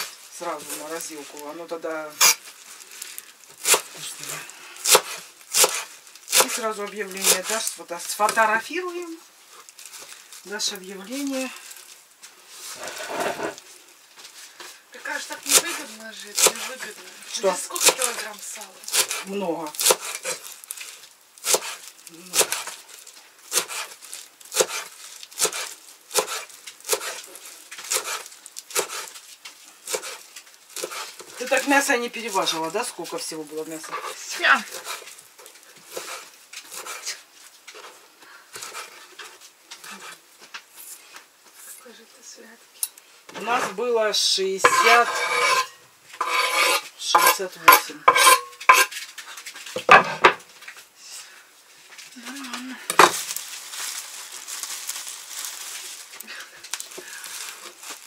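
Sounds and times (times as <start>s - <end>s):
knife chopping on wooden board: 4.9s - 6.6s, 21.5s - 21.8s, 46.2s - 48.9s, 52.9s - 53.2s
knife scraping cutting board: 12.7s - 13.6s, 24.6s - 29.1s, 29.9s - 30.2s, 30.8s - 31.2s, 33.8s - 35.1s, 35.9s - 38.0s, 38.6s - 40.2s, 44.6s - 49.0s
knife and board knocking bowl: 44.7s - 48.9s, 49.8s - 50.4s.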